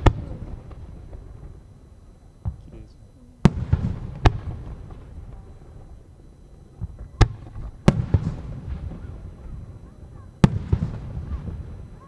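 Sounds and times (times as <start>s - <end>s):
firework shells booming: 0.0s - 12.0s
low rumble of echoes: 0.0s - 12.0s
small firework thuds: 2.4s - 2.8s, 6.7s - 9.7s, 10.4s - 12.0s.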